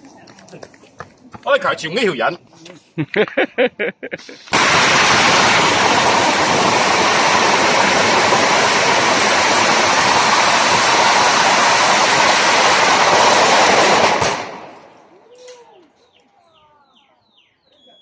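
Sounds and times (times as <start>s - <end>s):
firecrackers crackling: 4.2s - 15.1s.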